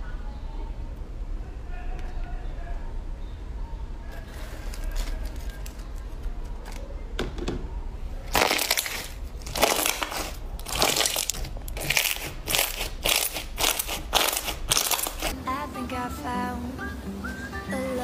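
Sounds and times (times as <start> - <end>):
slime squishing: 4.1 - 7.1, 8.1 - 15.4
quiet sticky slime sounds: 7.8 - 15.3.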